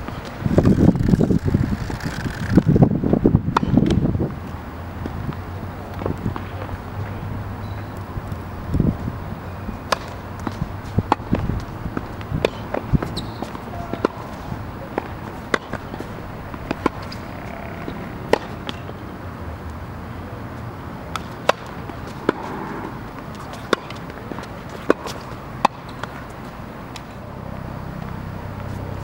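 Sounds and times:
low outdoor background: 0.0s - 29.0s
tennis racket hitting ball: 3.5s - 4.3s, 9.9s - 19.1s, 21.1s - 27.0s
tennis ball bouncing on court: 3.5s - 4.4s, 5.0s - 9.0s, 9.8s - 19.1s, 21.1s - 27.1s.

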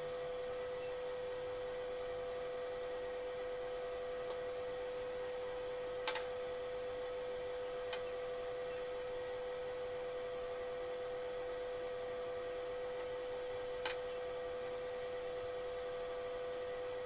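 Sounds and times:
high-pitched electrical whine: 0.0s - 17.0s.

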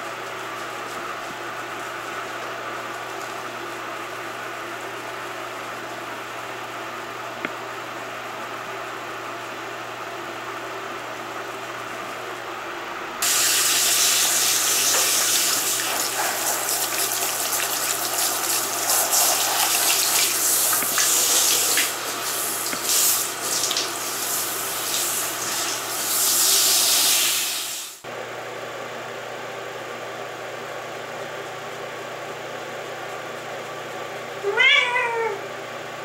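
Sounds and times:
shower spray hissing on fur: 13.2s - 28.0s.

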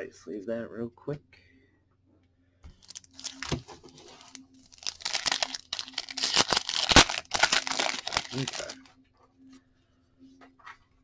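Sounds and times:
foil pack tearing and crinkling: 4.2s - 8.8s.

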